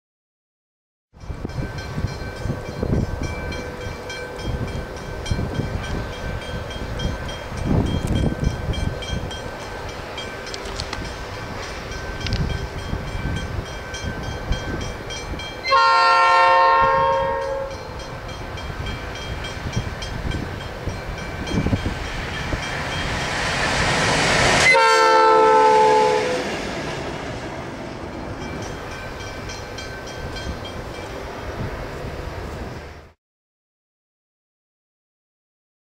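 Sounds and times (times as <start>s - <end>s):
diesel locomotive engine passing: 1.2s - 33.2s
locomotive horn blasts: 15.6s - 18.0s, 24.5s - 26.6s.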